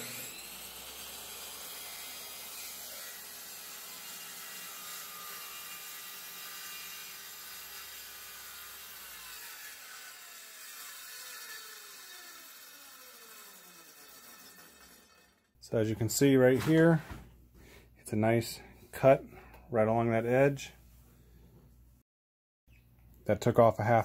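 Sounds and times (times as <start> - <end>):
circular saw cutting plywood: 0.0 - 15.6
saw blade winding down: 0.0 - 15.6.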